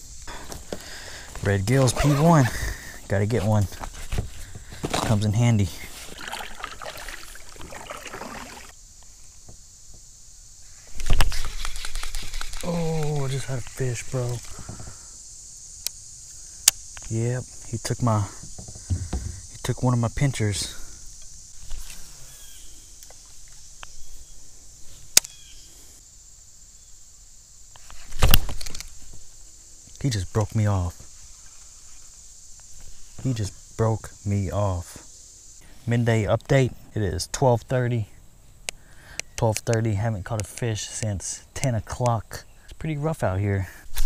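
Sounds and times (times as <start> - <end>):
high drone of insects: 0.0 - 44.0
kayak paddle splashing water: 5.9 - 8.8
knocks against plastic hull: 18.4 - 19.4.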